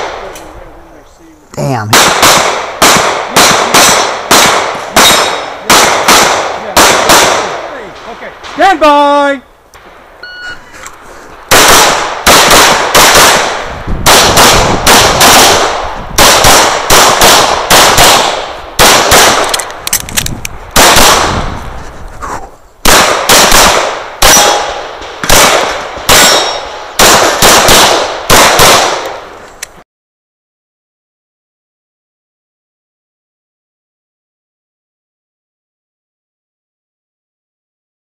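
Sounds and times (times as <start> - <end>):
rapid handgun fire: 1.9 - 8.6, 11.5 - 19.9, 20.8 - 21.6, 22.8 - 29.3.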